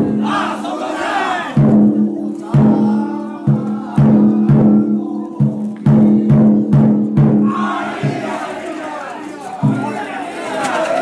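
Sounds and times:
taiko drum strikes: 1.6s - 8.4s, 9.6s - 10.0s.

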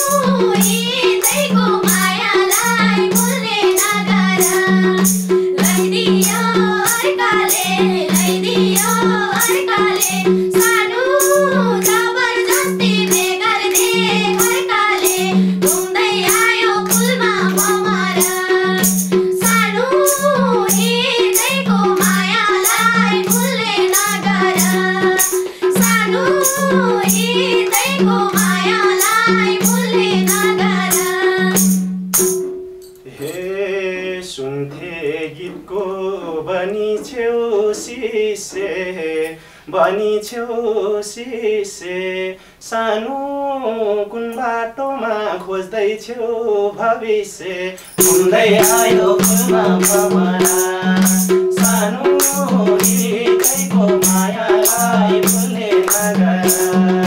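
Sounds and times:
voices singing folk song: 0.0s - 31.9s, 33.1s - 57.0s
hand drum beat: 0.0s - 32.8s, 47.9s - 57.0s
jingling percussion: 0.0s - 33.7s, 47.8s - 57.0s.

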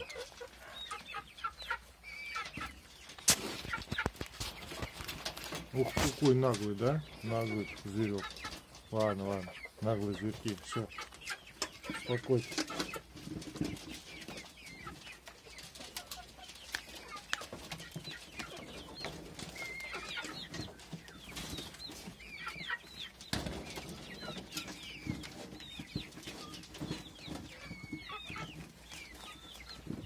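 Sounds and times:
high chirping calls: 6.8s - 10.0s, 18.0s - 30.0s.

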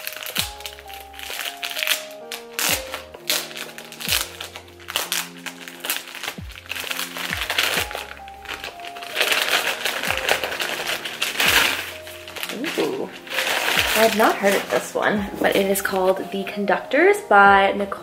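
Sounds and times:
wrapping crinkling and rustling: 0.0s - 17.3s
background music with a beat: 6.1s - 9.2s, 9.9s - 14.3s.

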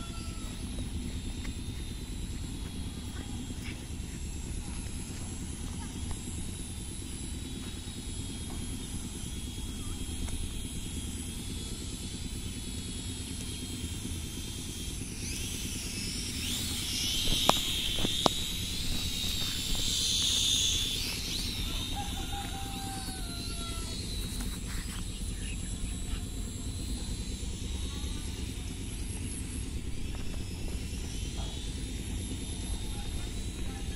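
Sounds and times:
drone propellers whining: 0.0s - 33.9s
steady low rumble: 0.0s - 33.9s
sharp clicks: 16.4s - 21.6s.

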